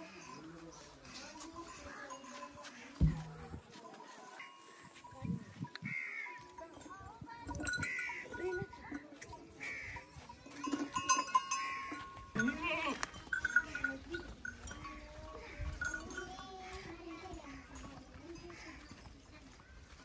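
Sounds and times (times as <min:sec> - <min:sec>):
metal chain rattling: 0:06.6 - 0:19.0
farm animals bleating: 0:07.6 - 0:17.8.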